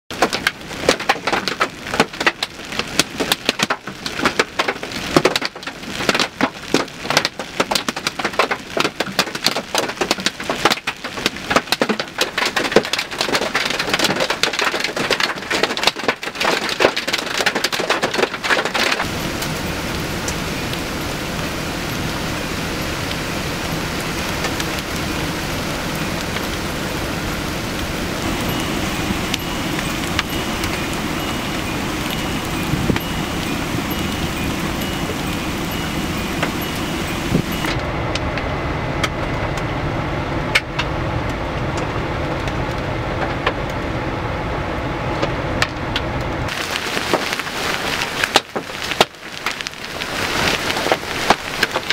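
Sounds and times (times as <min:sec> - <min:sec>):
hail pelting down: 0:00.1 - 0:37.8, 0:46.4 - 0:51.9
steady rush of noise: 0:12.2 - 0:51.9.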